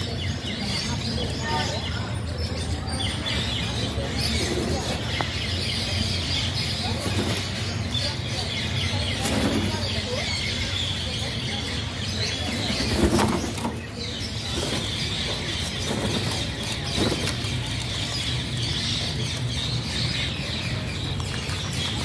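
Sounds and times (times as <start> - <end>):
parakeets flapping wings: 6.8 - 7.8, 12.0 - 18.4.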